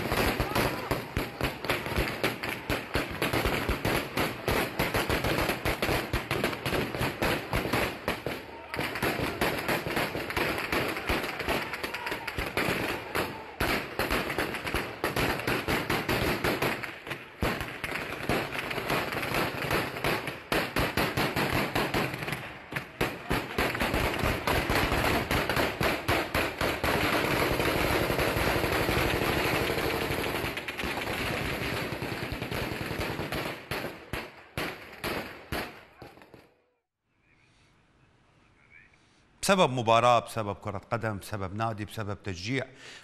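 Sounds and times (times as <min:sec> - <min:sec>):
heavy gunfire bursts: 0:12.4 - 0:35.8.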